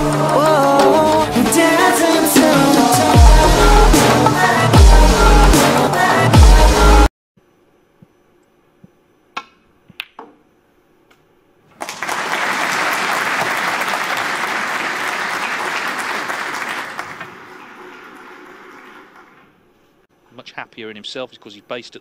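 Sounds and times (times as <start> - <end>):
audience applause: 11.8 - 19.4.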